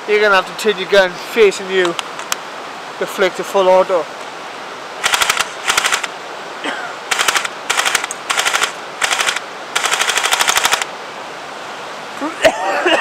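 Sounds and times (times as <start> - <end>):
airsoft gun firing bursts: 5.0 - 6.1, 7.1 - 10.9.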